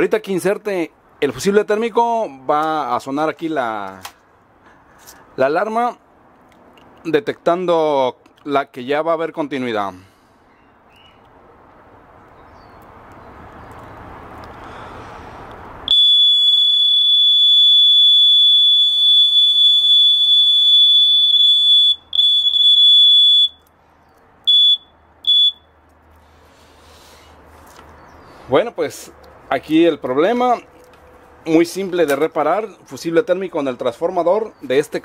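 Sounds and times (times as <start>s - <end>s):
continuity tester beeping: 15.9s - 23.7s, 24.5s - 25.7s.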